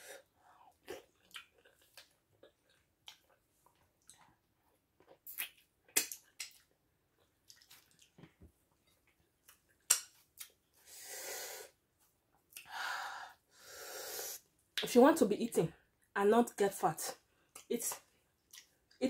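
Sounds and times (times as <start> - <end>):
wet chewing sounds: 0.7 - 10.8, 18.4 - 19.0.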